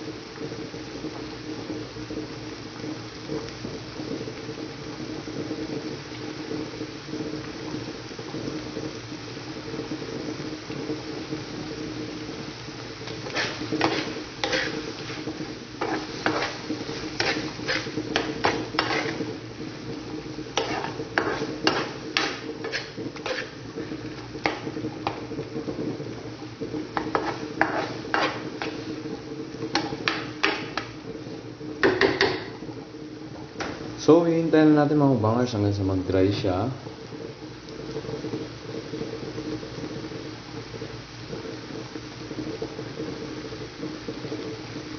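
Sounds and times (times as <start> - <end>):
steady sizzle: 0.0 - 44.9
metal spoon scraping skillet: 13.0 - 19.4, 20.5 - 25.3, 26.9 - 29.0, 29.6 - 31.0.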